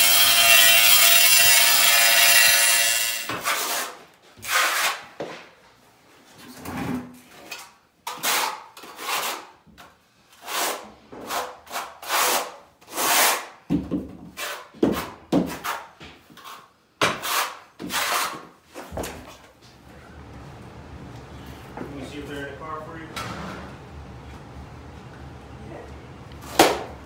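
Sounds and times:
trowel scraping mortar: 0:00.0 - 0:05.1, 0:07.5 - 0:09.6, 0:10.4 - 0:13.5, 0:14.3 - 0:18.6.

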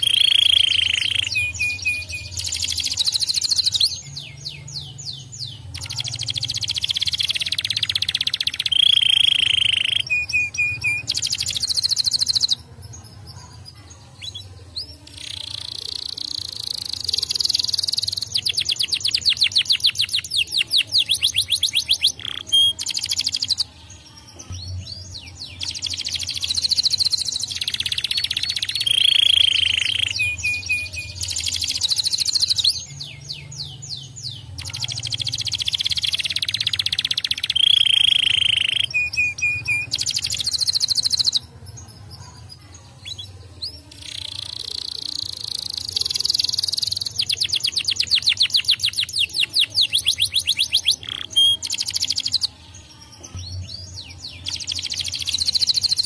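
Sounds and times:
canary singing: 0:00.0 - 0:56.0.

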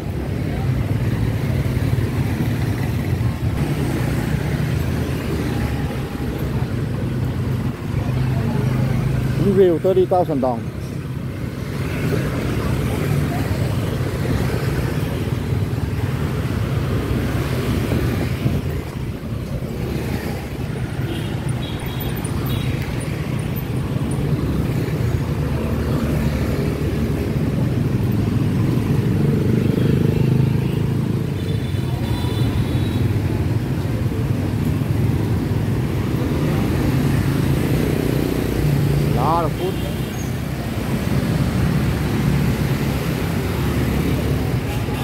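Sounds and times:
motor scooter traffic passing: 0:00.0 - 0:45.0.

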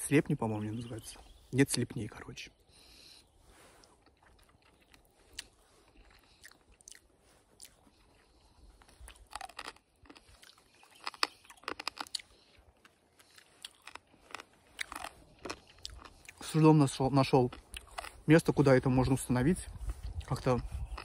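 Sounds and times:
person chewing crunchy food: 0:03.6 - 0:16.6, 0:17.4 - 0:18.3, 0:19.7 - 0:21.0.

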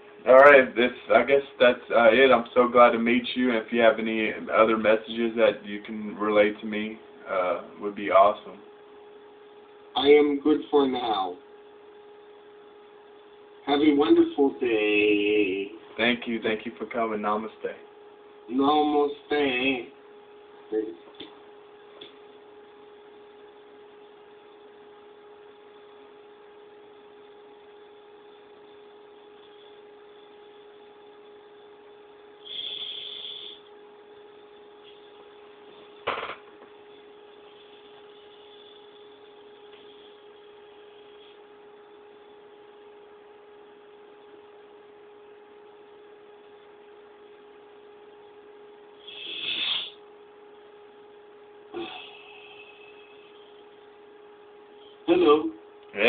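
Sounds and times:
electrical hum: 0:00.0 - 0:56.0
burst of hissy noise: 0:49.0 - 0:50.0.

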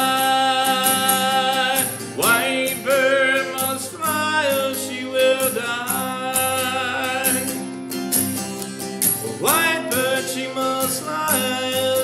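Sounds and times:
man singing long held notes: 0:00.0 - 0:07.5
strummed acoustic guitar: 0:00.0 - 0:12.0.

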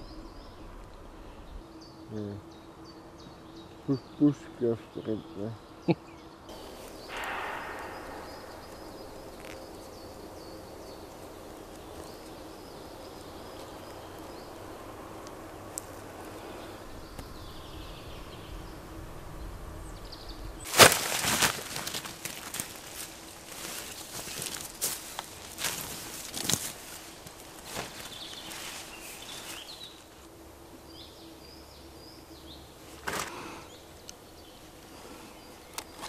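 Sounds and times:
faint steady hum: 0:00.0 - 0:36.0
sharp crack: 0:06.5 - 0:11.0, 0:20.6 - 0:23.0
twigs crackling and rustling: 0:06.5 - 0:17.4, 0:20.6 - 0:30.3.

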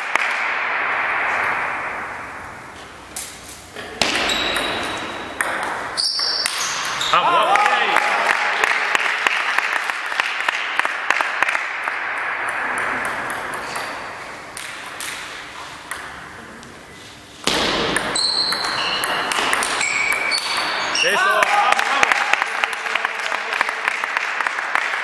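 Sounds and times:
shoe squeaks: 0:04.2 - 0:05.2, 0:06.0 - 0:07.2, 0:18.1 - 0:21.2.

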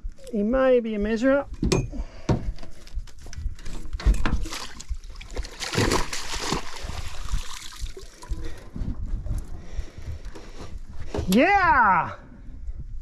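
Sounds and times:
fish splashing at surface: 0:04.4 - 0:08.3
water pouring through net: 0:04.4 - 0:08.6.

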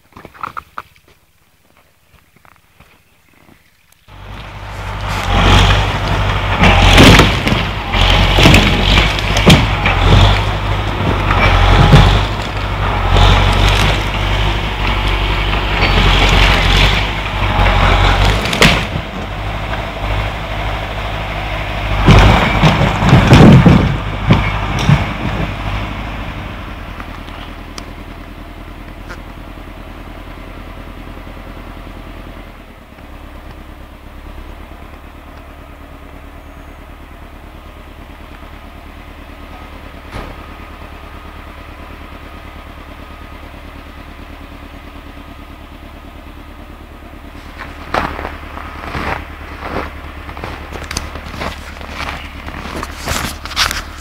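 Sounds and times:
diesel engine running: 0:04.0 - 0:54.0
heavy thuds and clatter: 0:04.3 - 0:20.2, 0:21.8 - 0:25.8, 0:40.0 - 0:40.6, 0:47.4 - 0:54.0.

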